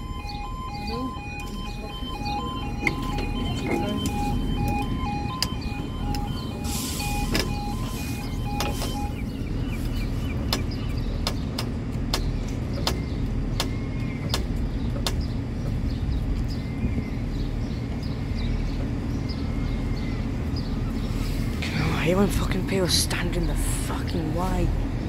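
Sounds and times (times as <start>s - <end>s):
level crossing two-tone alarm: 0.0s - 9.6s
low rumble: 0.0s - 25.0s.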